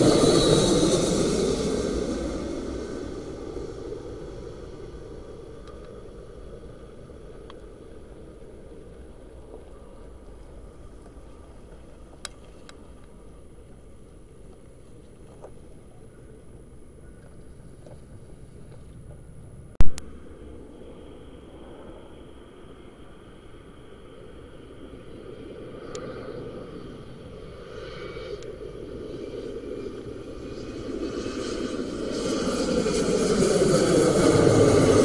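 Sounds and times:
jet engines rumbling: 0:00.0 - 0:35.0.

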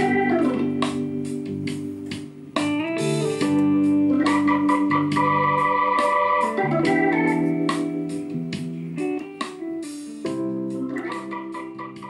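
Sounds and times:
song with guitar and keyboard: 0:00.0 - 0:12.0.

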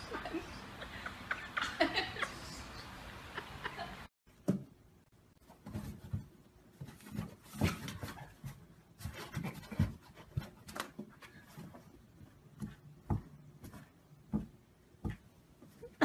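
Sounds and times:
paws tapping on cardboard: 0:05.6 - 0:15.4.

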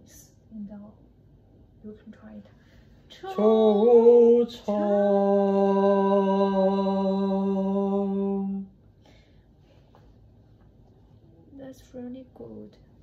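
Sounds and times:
person singing unaccompanied: 0:03.2 - 0:08.7.

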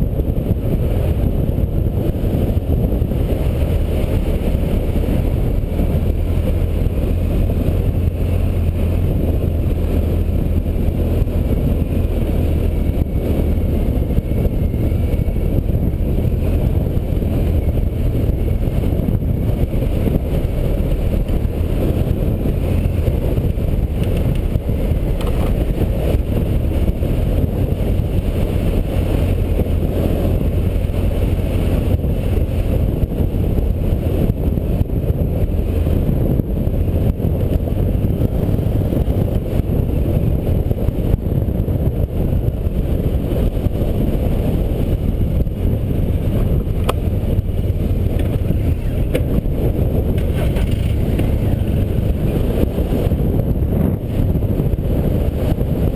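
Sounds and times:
off-road vehicle engine running: 0:00.0 - 0:55.9
wind noise on microphone: 0:00.0 - 0:55.9.

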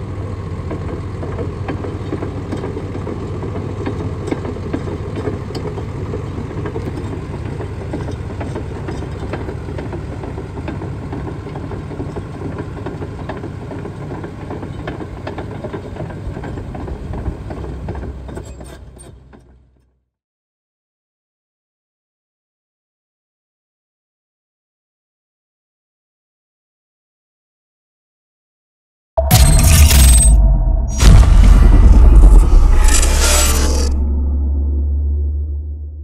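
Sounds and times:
diesel engine running: 0:00.0 - 0:19.7, 0:29.2 - 0:36.0.

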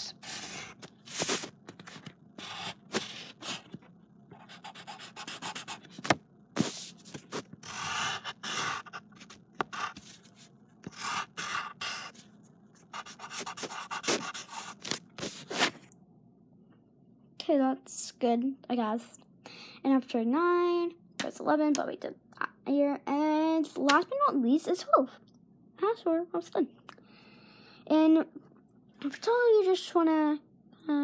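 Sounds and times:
pencil rubbing on paper: 0:00.0 - 0:03.8, 0:04.4 - 0:06.0, 0:06.6 - 0:15.8
pencil scratching on paper: 0:00.0 - 0:03.8, 0:04.4 - 0:15.8.

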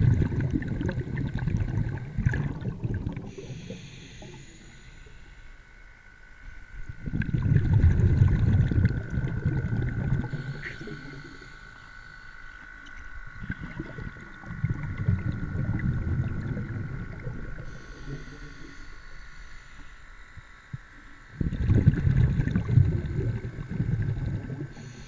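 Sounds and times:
underwater rumbling gurgle: 0:00.0 - 0:04.4, 0:06.8 - 0:12.0, 0:12.6 - 0:18.8, 0:20.4 - 0:24.9
steady thin whine: 0:00.0 - 0:25.0
faint clicks: 0:10.6 - 0:14.2.

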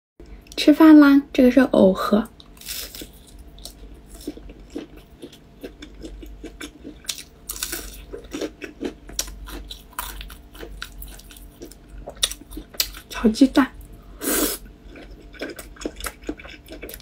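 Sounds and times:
crisp chewing crunches: 0:02.4 - 0:13.2, 0:14.8 - 0:17.0.

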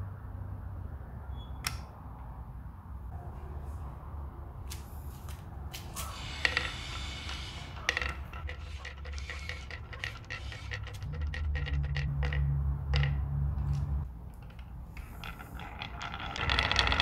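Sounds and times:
wooden balls rolling and clicking: 0:05.8 - 0:17.0.

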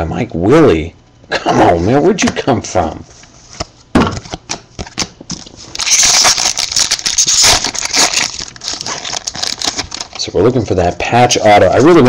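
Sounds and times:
foil wrapper tearing and crinkling: 0:05.6 - 0:10.3.

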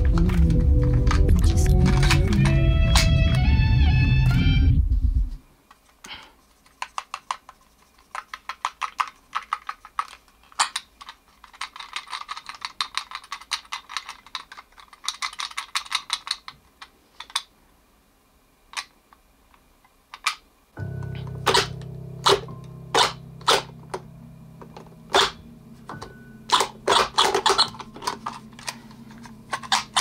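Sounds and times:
plastic toy parts clicking: 0:06.6 - 0:17.5, 0:18.7 - 0:19.0, 0:20.1 - 0:20.4, 0:25.1 - 0:30.0.

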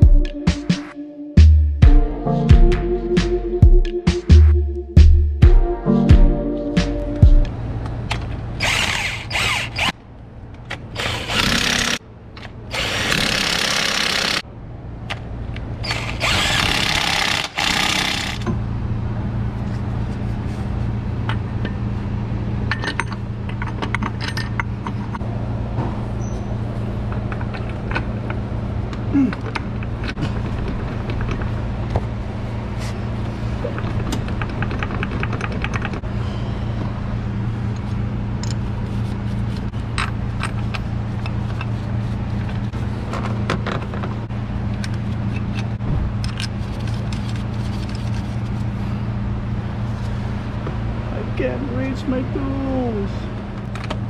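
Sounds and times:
cordless power tool bursts: 0:08.6 - 0:09.9, 0:15.8 - 0:18.4.

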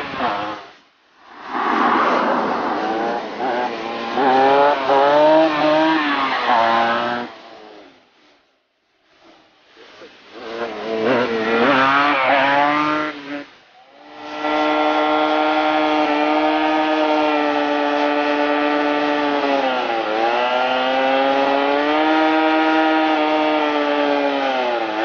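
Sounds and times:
tyre spinning on asphalt: 0:01.3 - 0:07.3
motorcycle engine revving: 0:01.4 - 0:07.8, 0:10.3 - 0:25.0.

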